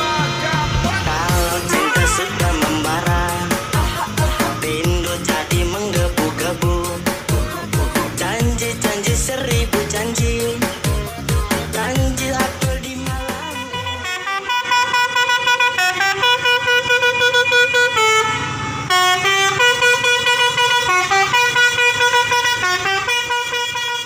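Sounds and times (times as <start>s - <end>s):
musical air horn tune: 1.2s - 7.0s, 13.1s - 24.0s.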